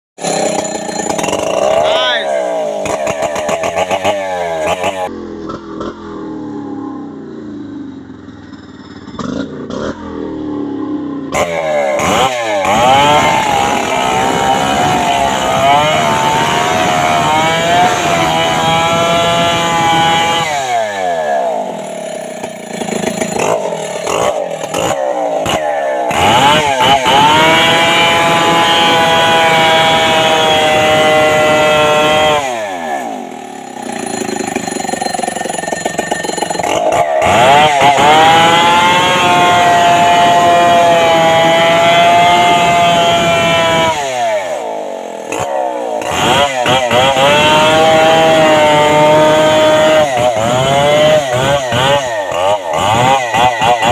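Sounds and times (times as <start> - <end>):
chainsaw cutting wood: 0.2 - 6.6, 11.3 - 53.9.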